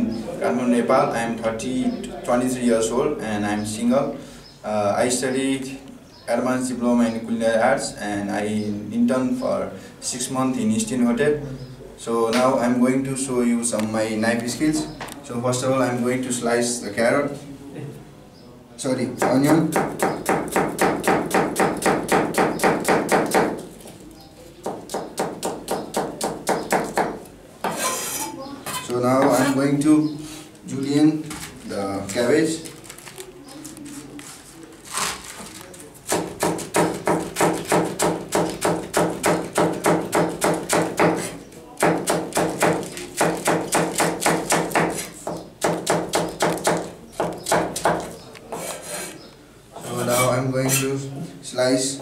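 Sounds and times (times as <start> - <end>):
knife chopping on plastic board: 19.2 - 23.7, 24.6 - 27.2, 36.1 - 48.7.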